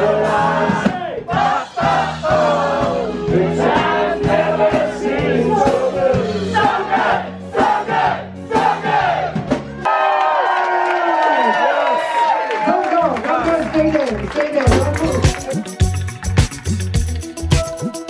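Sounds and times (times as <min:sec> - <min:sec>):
crowd singing and shouting: 0:00.0 - 0:09.7
party music with bass line: 0:00.0 - 0:09.8, 0:14.5 - 0:18.0.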